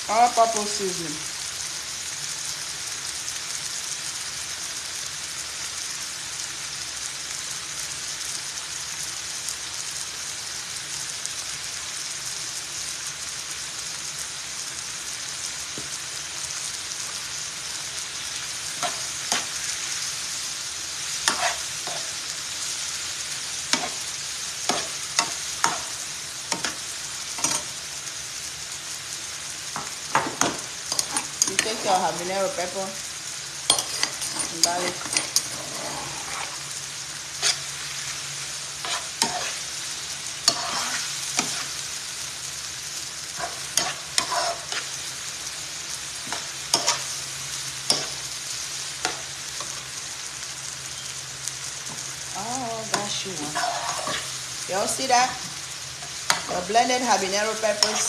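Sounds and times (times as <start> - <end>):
vegetables sizzling in oil: 0.0 - 58.0
metal spoon scraping pan: 18.8 - 19.6, 21.2 - 22.2, 24.7 - 26.0, 27.4 - 27.7, 29.8 - 32.1, 33.7 - 36.6, 37.4 - 37.7, 38.8 - 39.6, 40.4 - 41.8, 43.4 - 44.9, 46.3 - 47.1, 47.9 - 48.2, 52.9 - 56.7, 57.5 - 58.0.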